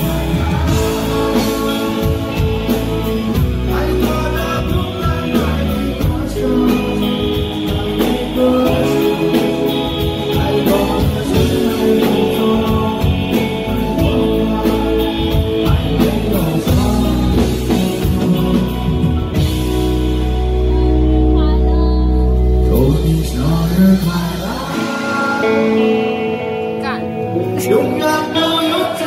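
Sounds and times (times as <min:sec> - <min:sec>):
man singing: 0:00.0 - 0:20.0, 0:22.4 - 0:26.6, 0:27.2 - 0:29.0
drum kit beat: 0:00.0 - 0:20.8
electric guitar: 0:00.0 - 0:29.0.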